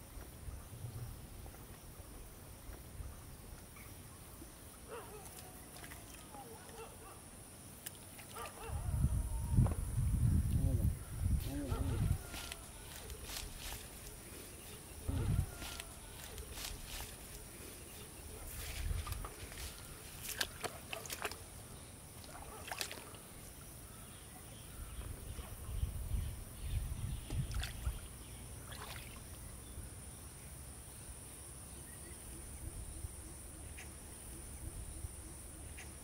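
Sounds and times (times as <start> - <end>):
feet and hands sloshing in water: 4.9 - 8.7, 11.4 - 23.5, 27.2 - 29.4
high insect drone: 8.8 - 20.7
leafy plants rustling: 11.3 - 21.5.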